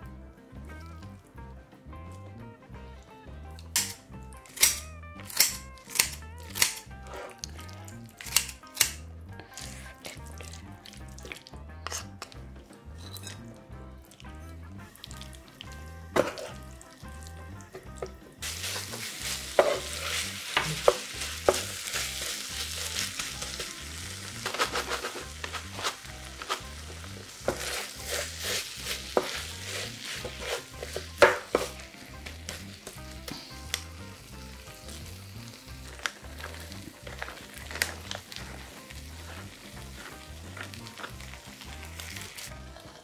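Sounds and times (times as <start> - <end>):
spatula scraping and clacking on pan: 3.7 - 7.5, 8.1 - 10.4, 11.2 - 13.5, 16.1 - 16.6, 17.7 - 33.9
rice sizzling in a pan: 18.4 - 43.0.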